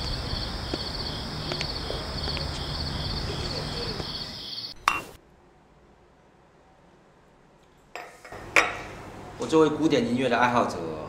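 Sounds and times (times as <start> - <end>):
faint footsteps: 0.0 - 4.3
crickets chirring: 0.0 - 5.1.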